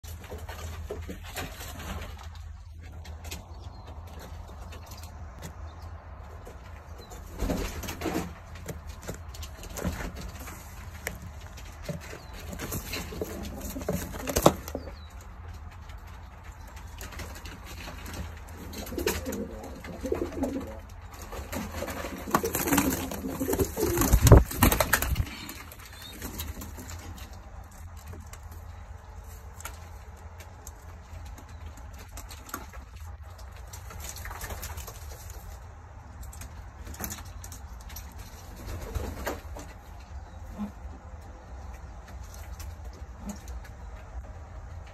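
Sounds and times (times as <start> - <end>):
pigeons cooing: 12.2 - 15.1, 18.4 - 26.8.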